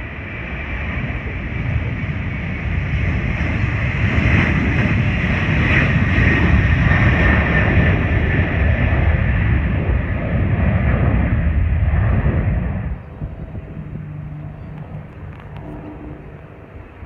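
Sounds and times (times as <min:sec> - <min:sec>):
jet engines roaring: 0:00.0 - 0:17.0
high fan whine: 0:09.8 - 0:17.0.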